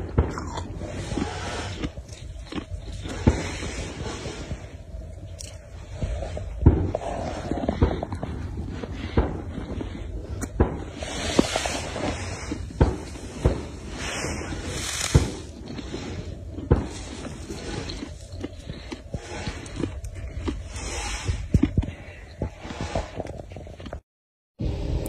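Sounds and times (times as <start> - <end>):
snow crunching in hand: 11.0 - 16.2.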